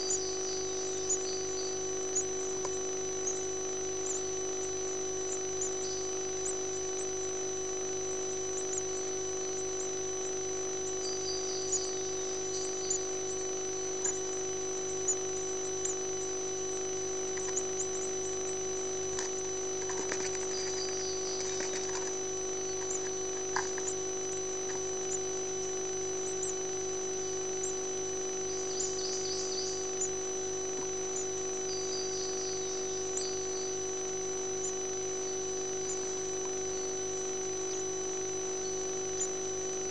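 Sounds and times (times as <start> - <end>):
electronic hum and whine: 0.0 - 39.9
nestlings begging peeps: 10.9 - 25.5, 28.5 - 30.2.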